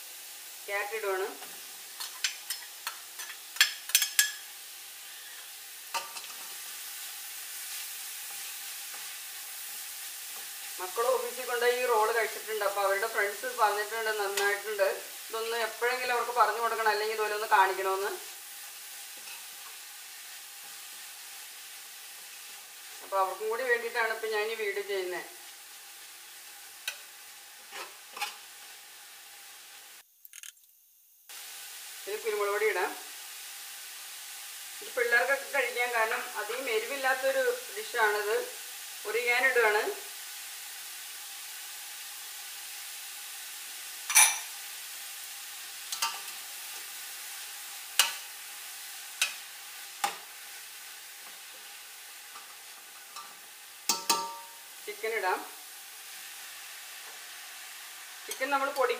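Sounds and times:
vegetables sizzling in oil: 0:00.0 - 0:30.2, 0:31.2 - 0:58.9
spoon knocking against pot: 0:53.9 - 0:54.5.

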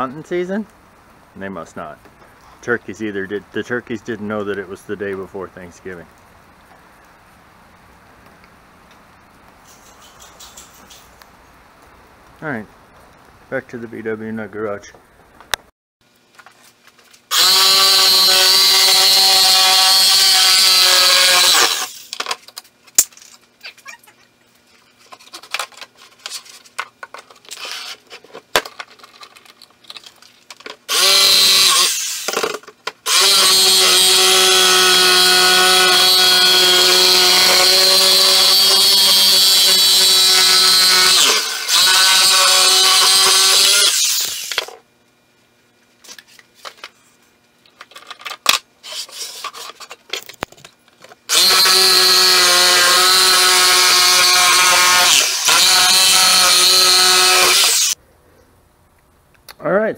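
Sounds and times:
jigsaw cutting plywood: 0:17.3 - 0:22.0, 0:30.9 - 0:44.7, 0:51.3 - 0:58.0.

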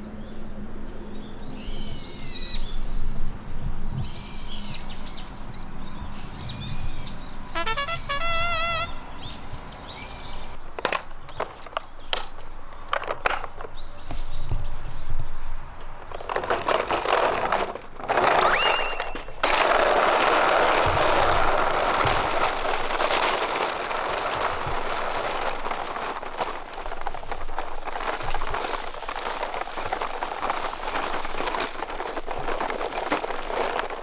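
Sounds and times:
plastic toy wheels rolling on paving: 0:10.7 - 0:34.0
plastic toy case clicks and knocks: 0:10.8 - 0:13.8, 0:16.0 - 0:23.7.

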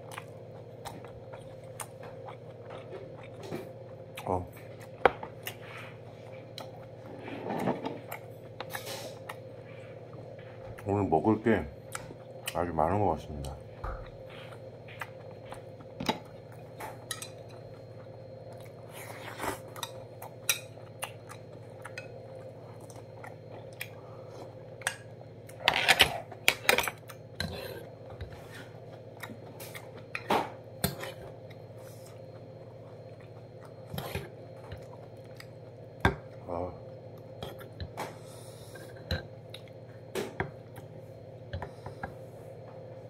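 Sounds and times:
chewing: 0:00.0 - 0:05.7
steady low hum: 0:00.0 - 0:43.0.

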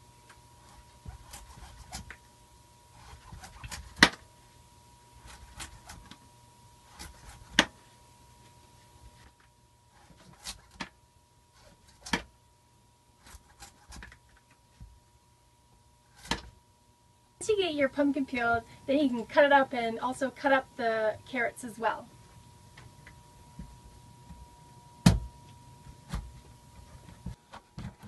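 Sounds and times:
knife scraping pumpkin rind: 0:00.6 - 0:02.2, 0:06.8 - 0:07.6, 0:13.2 - 0:14.2.

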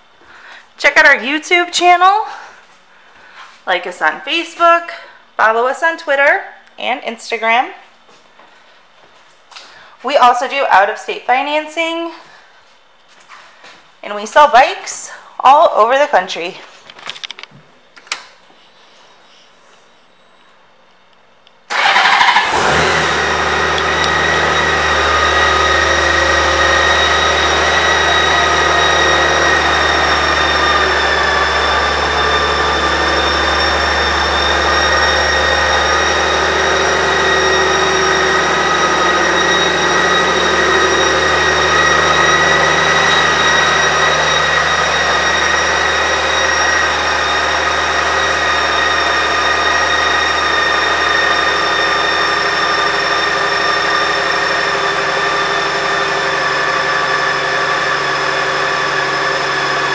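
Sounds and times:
motorcycle engine starting and idling: 0:21.7 - 0:59.9
steady high whine: 0:22.0 - 0:59.9.

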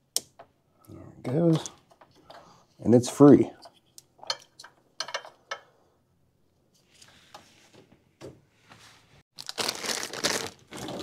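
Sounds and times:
packaging crinkling and tearing: 0:09.4 - 0:11.0.

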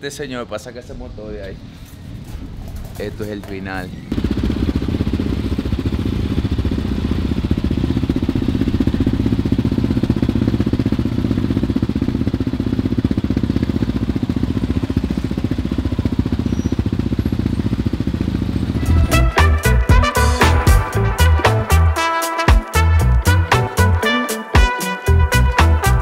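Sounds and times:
quad engine thumping at low revs: 0:02.4 - 0:19.2.

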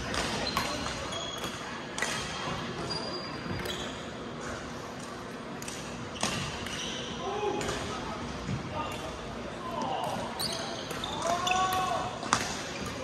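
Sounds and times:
shoes squeaking on court floor: 0:02.6 - 0:04.6, 0:06.0 - 0:07.2, 0:10.3 - 0:11.7.

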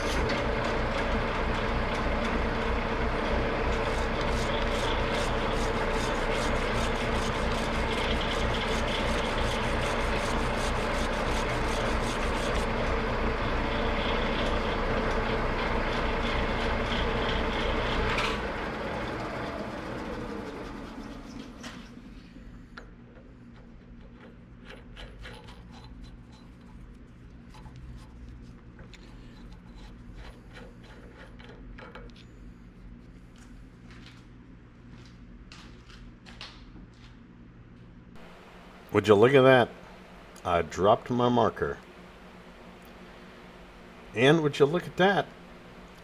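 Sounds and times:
metal lathe running: 0:00.0 - 0:21.6.

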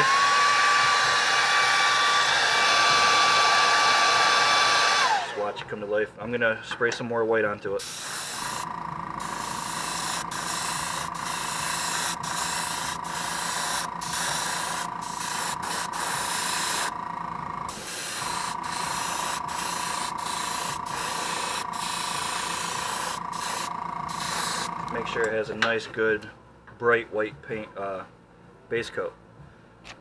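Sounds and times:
airbrush spraying hiss: 0:07.8 - 0:17.0, 0:17.7 - 0:24.8.

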